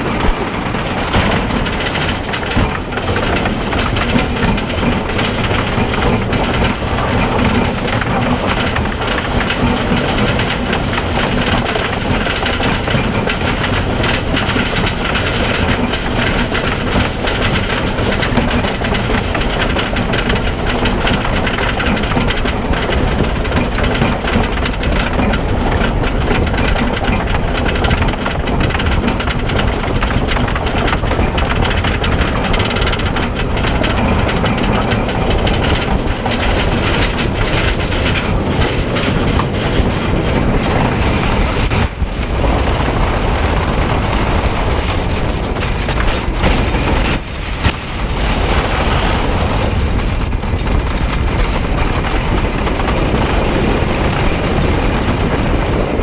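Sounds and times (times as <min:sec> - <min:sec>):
roller coaster rattling on wooden track: 0:00.0 - 0:56.0.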